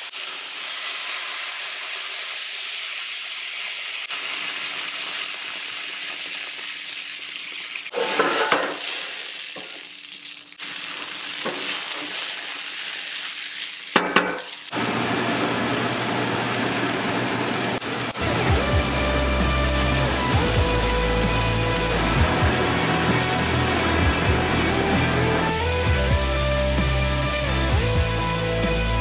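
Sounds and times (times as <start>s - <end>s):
sauce sizzling and bubbling: 0.0s - 29.0s
wooden spoon scraping pan: 7.9s - 8.8s.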